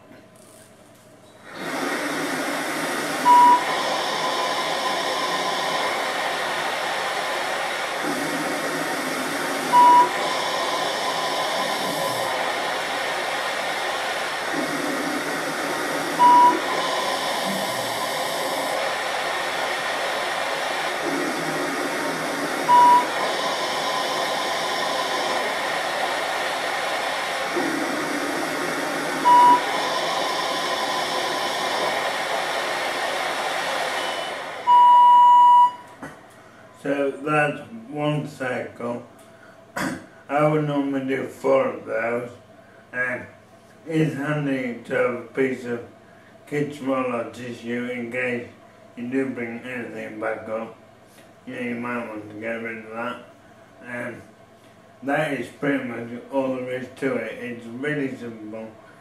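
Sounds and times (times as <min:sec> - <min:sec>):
machine blowing air: 0:01.3 - 0:47.2
short high beep: 0:03.3 - 0:03.7, 0:16.2 - 0:16.6, 0:22.7 - 0:23.2, 0:29.3 - 0:29.6, 0:34.7 - 0:35.9.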